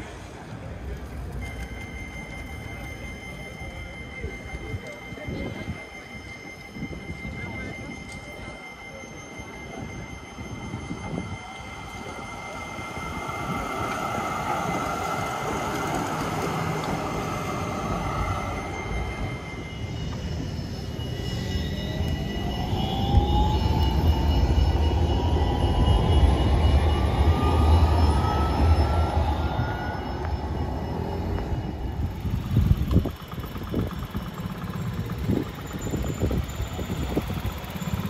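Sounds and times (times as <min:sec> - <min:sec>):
tram rolling noise: 0:00.0 - 0:38.0
wheels rumbling on rail: 0:00.0 - 0:38.0
electric motor whine rising: 0:12.2 - 0:38.0.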